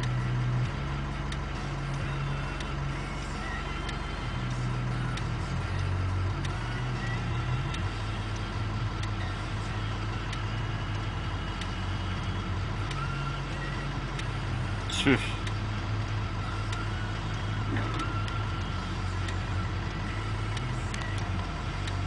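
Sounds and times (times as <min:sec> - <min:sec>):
locomotive engine droning: 0:00.0 - 0:22.0
faint clicks and rattles: 0:15.4 - 0:22.0.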